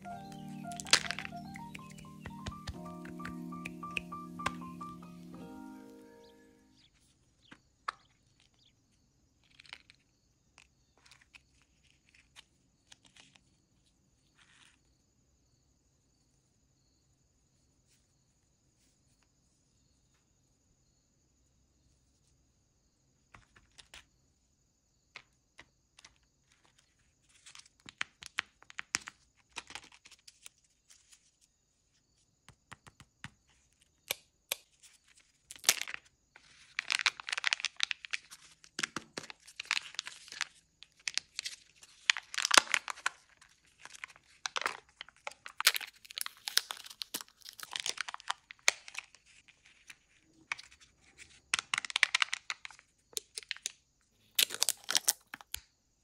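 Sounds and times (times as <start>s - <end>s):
plastic packaging crinkling: 35.5s - 53.7s, 54.3s - 55.6s
foil seal tearing: 41.1s - 49.0s, 54.4s - 55.6s.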